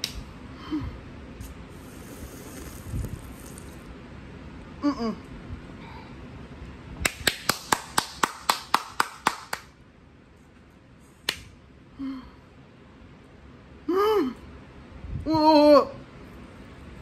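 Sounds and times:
muffled hum through closed lips: 0.0 - 7.3, 10.3 - 17.0
sharp hand claps: 7.0 - 9.8, 11.2 - 11.5.

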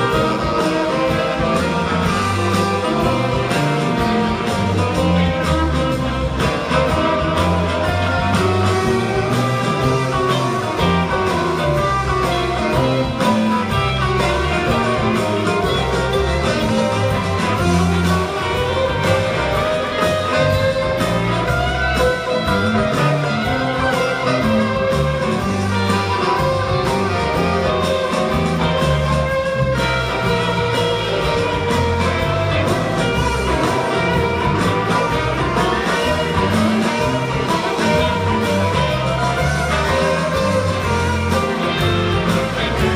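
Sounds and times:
acoustic and electric guitars: 0.0 - 42.9
drum kit: 0.0 - 42.9.

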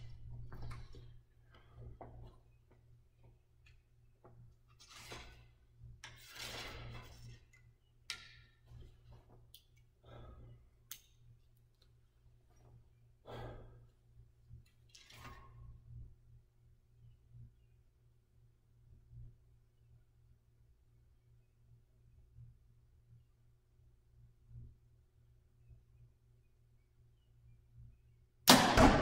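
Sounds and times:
steady low hum: 0.0 - 29.0
slow deep breathing: 10.0 - 10.9, 13.2 - 14.1.

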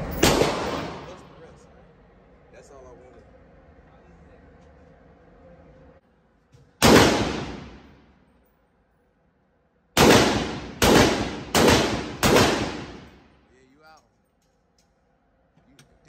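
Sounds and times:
pistol shots echoing indoors: 0.1 - 1.3, 6.8 - 8.2, 10.0 - 13.4.

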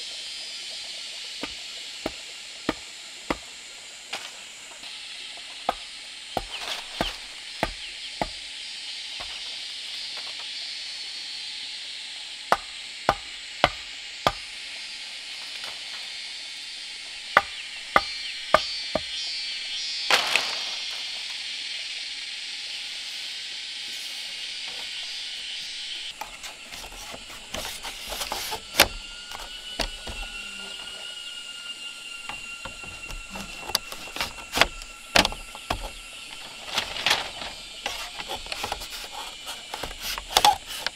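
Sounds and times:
steady high hiss: 0.0 - 40.9
high whistling tone: 24.3 - 38.6.

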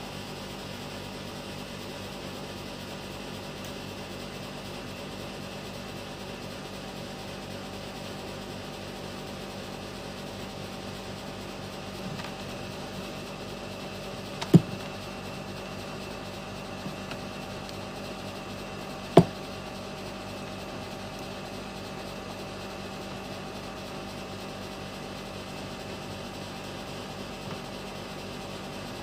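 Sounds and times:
steady background hum: 0.0 - 29.0
capacitor knocking on mat: 14.3 - 15.0, 19.1 - 19.5.

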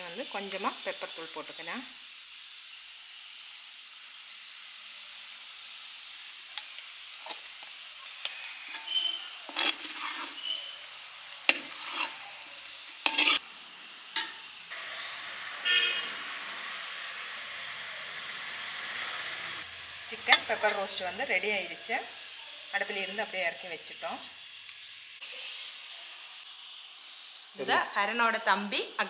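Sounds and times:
chicken sizzling in a steel pan: 0.0 - 29.0
steel spoon scraping a pan: 6.0 - 13.4, 14.2 - 14.6, 20.1 - 21.1.

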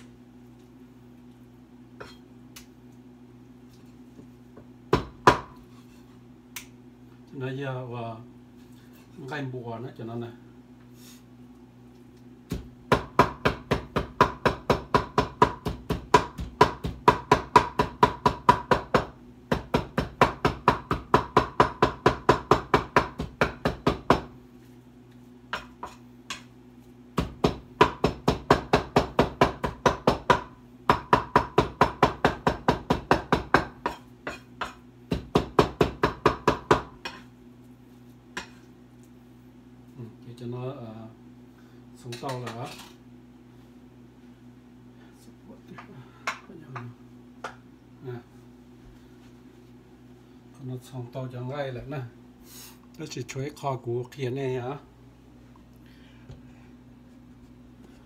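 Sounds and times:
knife chopping meat on wooden board: 4.6 - 5.6, 12.5 - 24.4, 25.5 - 26.5, 27.2 - 37.3.

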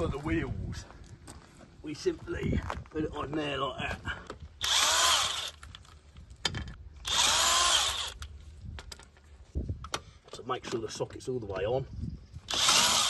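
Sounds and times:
impact wrench: 4.6 - 5.8, 6.6 - 8.3, 12.5 - 13.0.

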